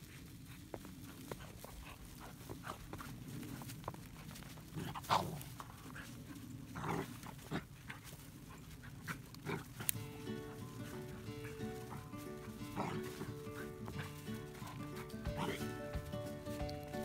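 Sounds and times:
scuffling through snow: 0.0s - 17.0s
puppies yapping: 8.6s - 17.0s
music: 10.0s - 17.0s.

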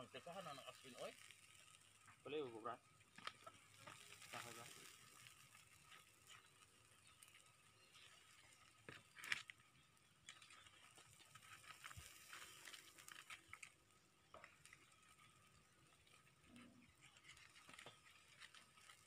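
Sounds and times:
faint crackles of roasting meat: 0.0s - 19.0s.

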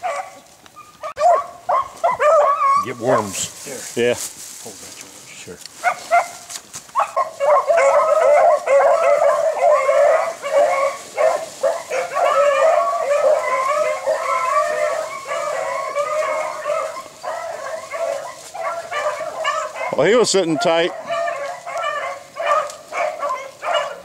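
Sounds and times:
pack of dogs baying: 0.0s - 3.5s, 5.7s - 24.0s.

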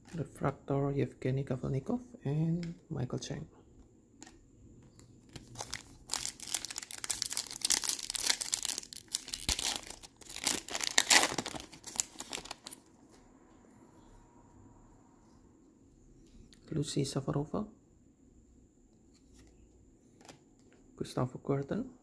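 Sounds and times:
card pack wrapper crinkling: 5.2s - 12.9s.

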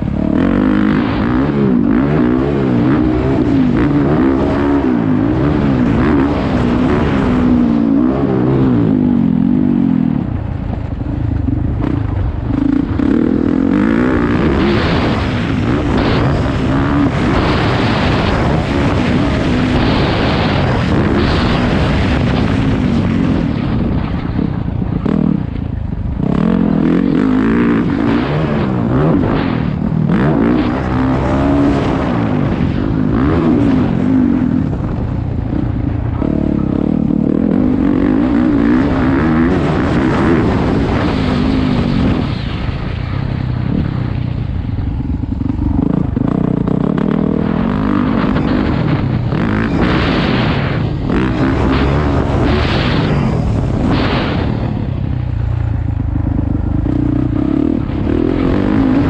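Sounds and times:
dirt bike engine revving: 0.0s - 42.7s, 44.8s - 59.0s
wind noise on microphone: 0.0s - 59.0s.

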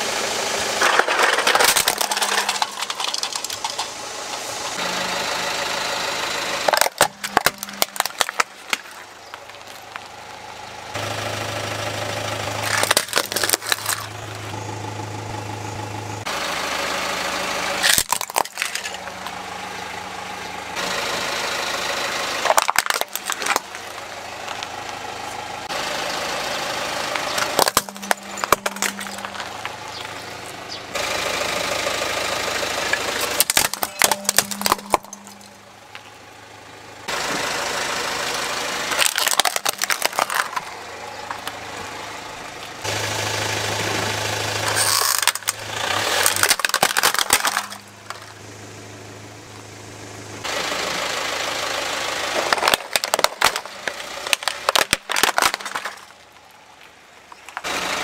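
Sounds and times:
car engine idling: 0.0s - 58.0s
plastic toys cracking: 0.8s - 4.4s, 6.6s - 10.0s, 12.6s - 14.2s, 17.8s - 19.3s, 22.4s - 23.9s, 27.4s - 30.2s, 33.2s - 35.6s, 38.9s - 41.6s, 44.6s - 48.3s, 52.4s - 57.7s.

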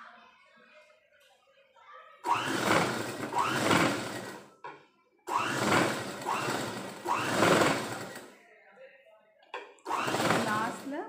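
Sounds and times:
sewing machine stitching: 2.2s - 4.5s, 5.3s - 8.3s, 9.9s - 11.0s.

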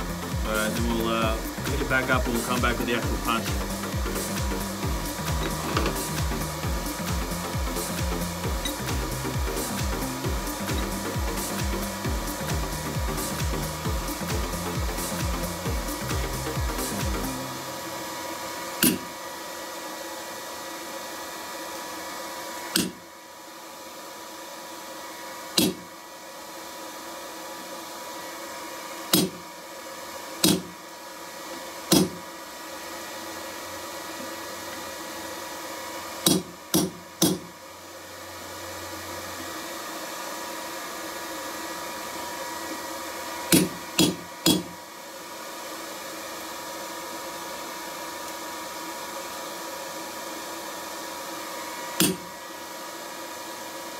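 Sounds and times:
steady hum: 0.0s - 26.5s
hammer striking metal punch: 18.8s - 19.1s, 25.6s - 25.8s, 29.1s - 29.4s, 30.4s - 30.7s, 31.9s - 32.2s, 36.2s - 37.5s, 43.5s - 44.7s, 52.0s - 52.3s.

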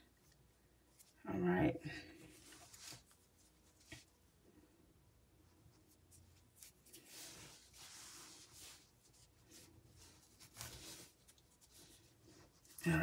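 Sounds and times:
yarn rubbing and rustling: 2.2s - 4.7s, 5.4s - 13.0s.

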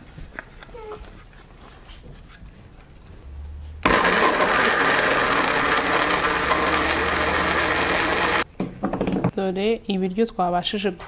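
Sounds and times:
blender motor running: 3.8s - 8.4s.

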